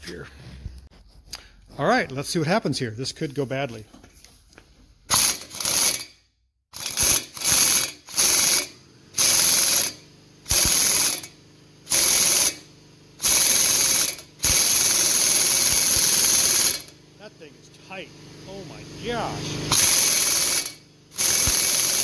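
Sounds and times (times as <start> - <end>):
impact wrench hammering: 5.1 - 6.1, 6.8 - 11.3, 13.2 - 16.9, 19.7 - 22.0.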